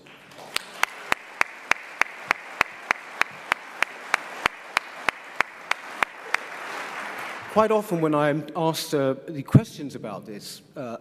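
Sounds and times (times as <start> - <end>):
nearby hands clapping sharply: 0.0 - 7.6
audience applauding: 0.0 - 8.1.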